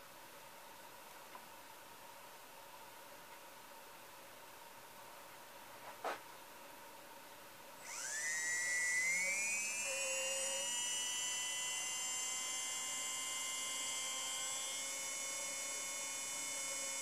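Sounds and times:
electric motor whine rising: 0:07.8 - 0:17.0
thin electronic whine: 0:07.8 - 0:17.0.

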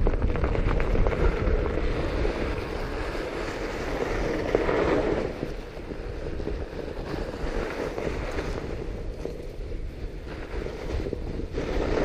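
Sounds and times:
bike tires rolling over snow: 0:00.0 - 0:12.0
wind buffeting microphone: 0:00.0 - 0:12.0.

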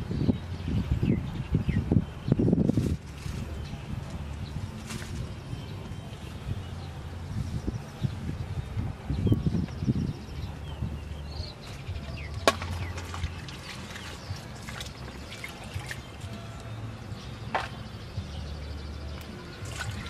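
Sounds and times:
stems snapping by hand: 0:12.3 - 0:15.2.

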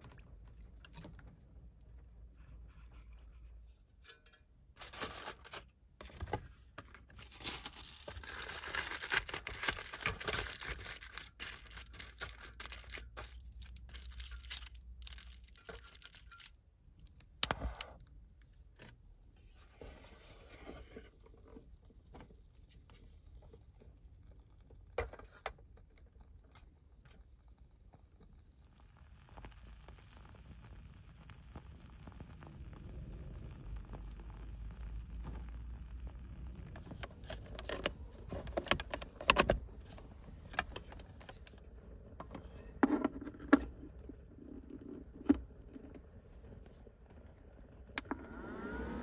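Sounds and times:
packaging rustling and tearing: 0:04.8 - 0:05.7, 0:07.1 - 0:16.6.

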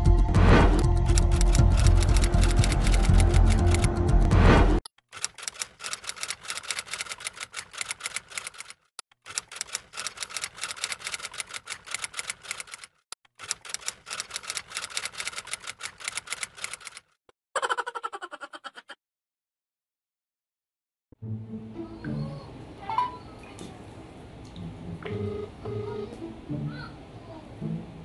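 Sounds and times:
typewriter keystroke clicks: 0:01.1 - 0:03.9.

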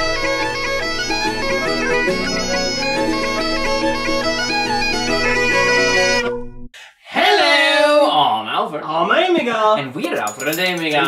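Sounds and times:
bagpipe chanter melody: 0:00.0 - 0:06.3
bagpipe drone: 0:00.0 - 0:06.4.

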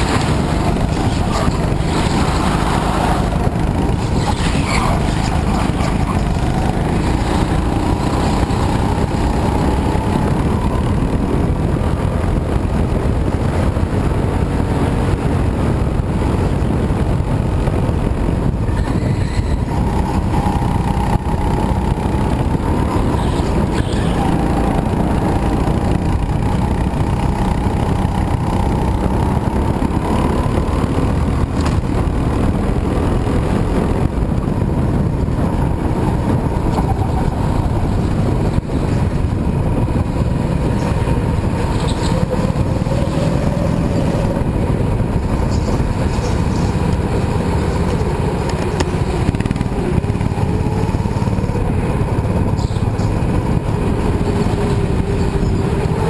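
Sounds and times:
go-kart engine racing: 0:00.0 - 0:56.0
wind noise on microphone: 0:00.0 - 0:56.0.

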